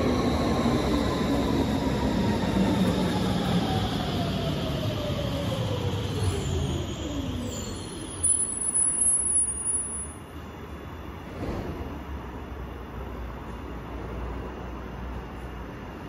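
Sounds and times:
train wheel rumble: 0:00.0 - 0:08.2, 0:10.5 - 0:16.0
electric train drive whine: 0:00.0 - 0:08.8.

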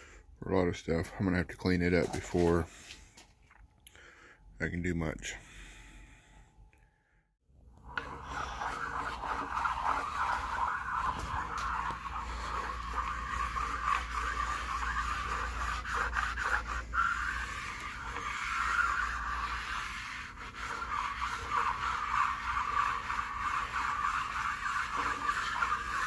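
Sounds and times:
abrasive stone scraping steel table: 0:07.8 - 0:26.0.

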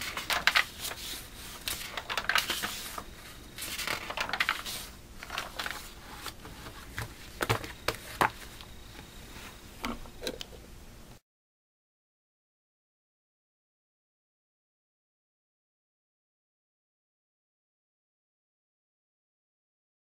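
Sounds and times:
paper pages rustling: 0:00.0 - 0:08.7.

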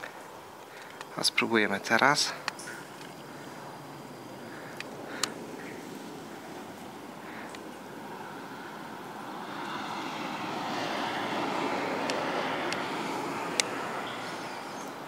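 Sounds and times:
faint clicks: 0:00.6 - 0:01.1, 0:04.7 - 0:05.4
passing vehicle rumble: 0:02.2 - 0:15.0.

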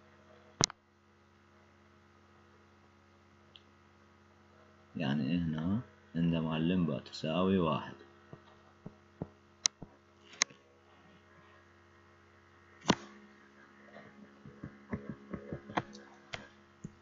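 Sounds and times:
electrical mains hum: 0:00.0 - 0:17.0
sharp clicks and taps: 0:14.4 - 0:17.0.

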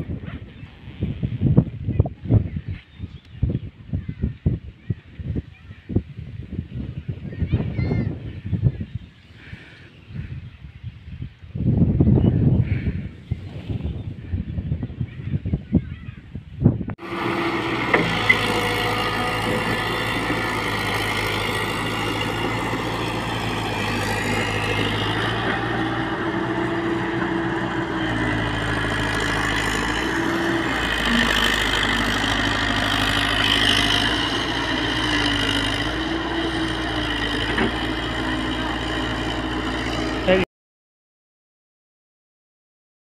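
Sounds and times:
excavator diesel engine running: 0:17.0 - 0:40.4.

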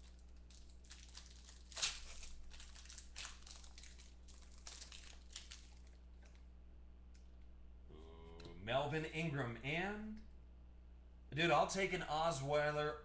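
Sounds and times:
plastic wrapper tearing: 0:00.0 - 0:06.4
plastic wrapper crinkling: 0:00.0 - 0:06.5.

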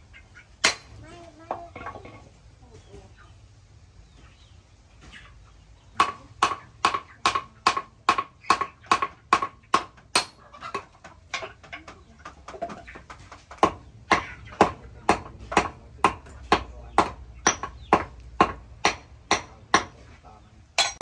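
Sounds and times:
hammer striking metal on anvil: 0:00.6 - 0:01.0, 0:06.0 - 0:10.4, 0:13.6 - 0:20.0, 0:20.8 - 0:21.0.

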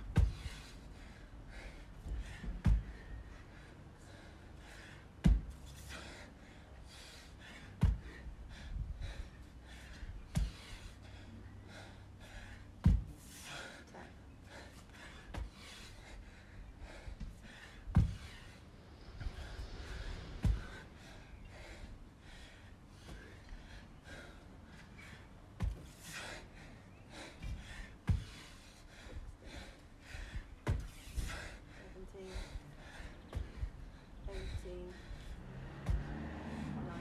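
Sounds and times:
heavy gasping breaths: 0:00.0 - 0:37.0
dumbbell thudding on rubber mats: 0:17.9 - 0:18.4.

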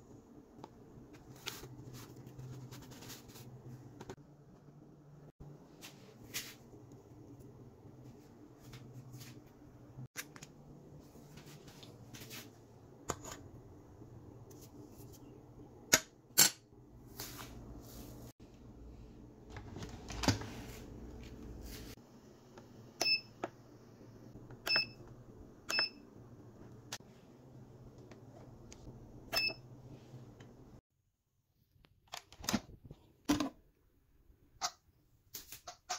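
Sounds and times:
low steady hum: 0:00.0 - 0:30.8
pressure cooker beeps: 0:23.0 - 0:23.4, 0:24.6 - 0:26.1, 0:29.3 - 0:29.7.

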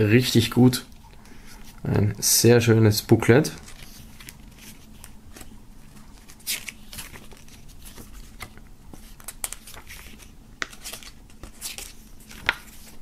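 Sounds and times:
paper pages turning: 0:03.6 - 0:13.0.

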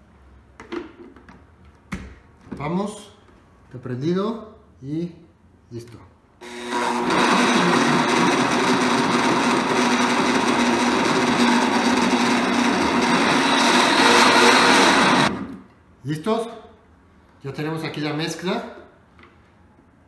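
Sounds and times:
blender motor whining: 0:06.4 - 0:15.4.

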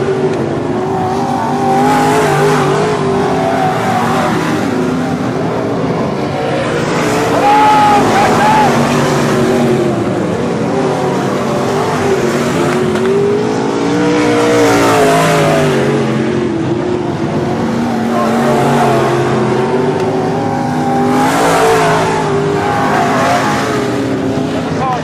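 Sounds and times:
race car engines passing: 0:00.0 - 0:25.0.

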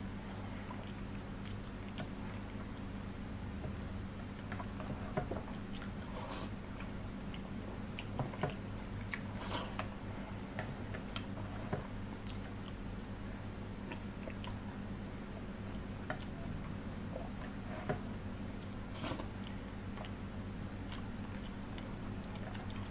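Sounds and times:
chewing and mouth smacks: 0:06.7 - 0:09.8, 0:20.8 - 0:22.9.

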